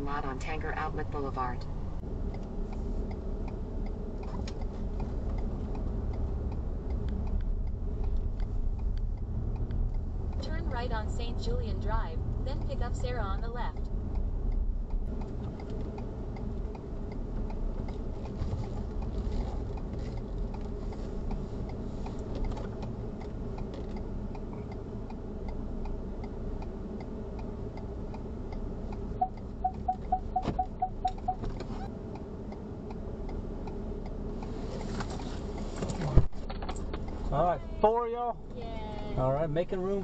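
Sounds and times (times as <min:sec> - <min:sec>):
road and engine rumble: 0:00.0 - 0:40.0
turn signal ticking: 0:00.0 - 0:40.0
quick beeps: 0:29.2 - 0:31.5.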